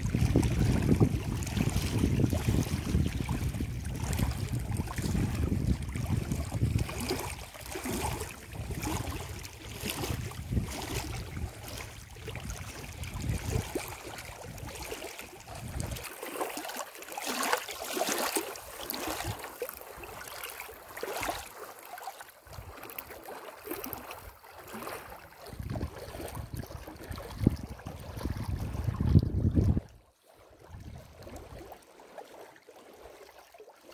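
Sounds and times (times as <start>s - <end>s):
wind buffeting microphone: 0.0s - 14.9s, 15.5s - 16.1s, 25.5s - 30.0s
water lapping and splashing: 0.0s - 33.9s.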